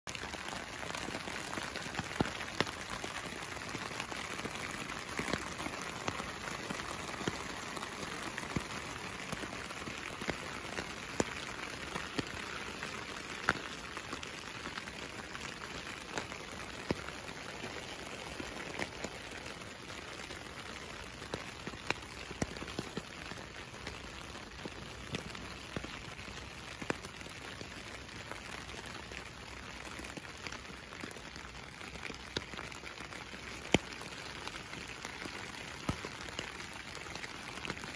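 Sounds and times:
rain pattering on tarp: 0.1 - 37.9.

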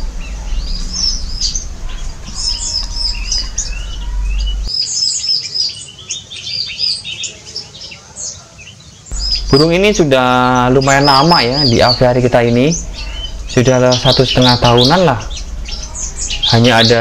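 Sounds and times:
low rumble: 0.0 - 4.7, 9.1 - 17.0
songbirds chirping: 0.0 - 17.0.

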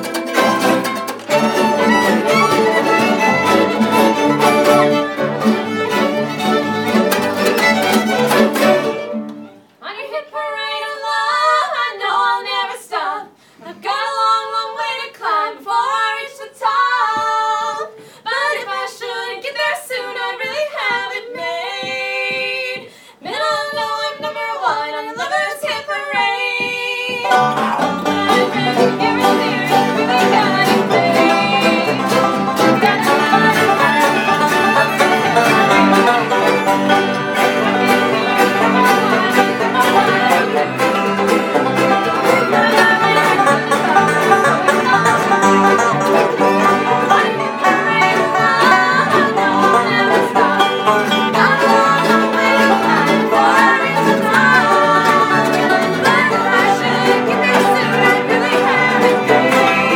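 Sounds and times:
band playing: 0.0 - 9.8, 27.2 - 59.9.

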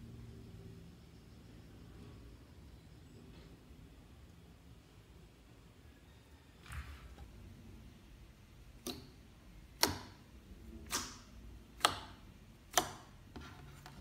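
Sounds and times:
sticky slime popping clicks: 9.7 - 10.2.

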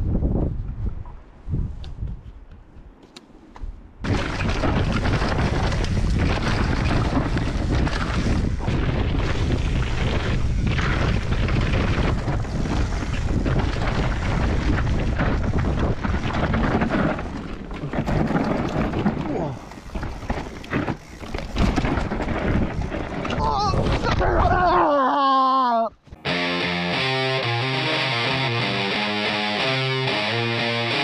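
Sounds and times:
wind buffeting microphone: 0.0 - 3.0, 3.6 - 24.6
bike knocks and rattles: 4.0 - 24.2
tyres rumbling over rough ground: 4.0 - 24.6.

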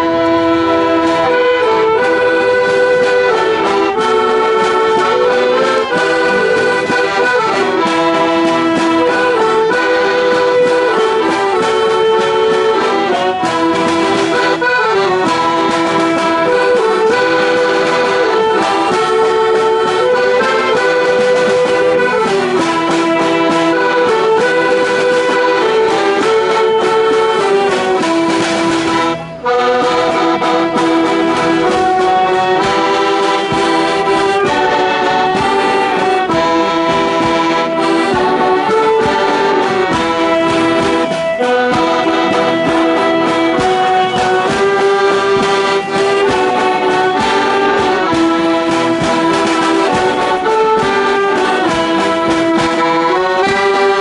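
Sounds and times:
bass drum beat: 0.0 - 54.0
folk band playing lively tune: 0.0 - 54.0.

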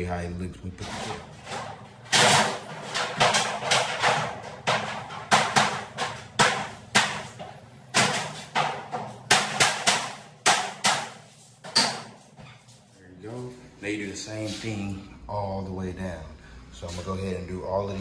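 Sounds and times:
sharp knocks: 1.2 - 12.3.

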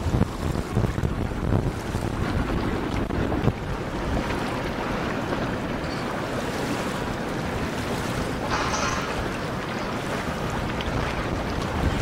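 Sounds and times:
river water wash: 0.0 - 12.0
wind buffeting microphone: 0.0 - 12.0.

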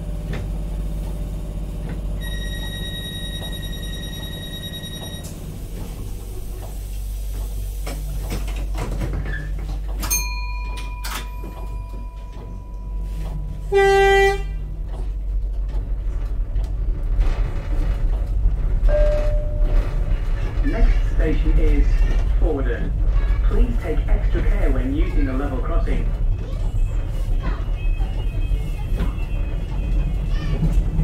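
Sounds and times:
train low rumble: 0.0 - 31.0
train horn toot: 13.6 - 14.7.

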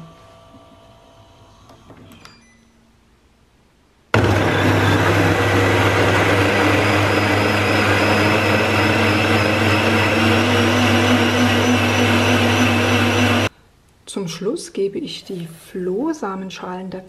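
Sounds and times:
blender motor whirring: 4.2 - 13.5.

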